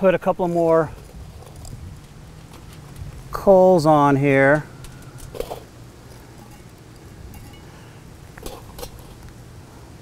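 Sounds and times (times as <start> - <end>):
charcoal clinking on cast iron lid: 4.5 - 9.3.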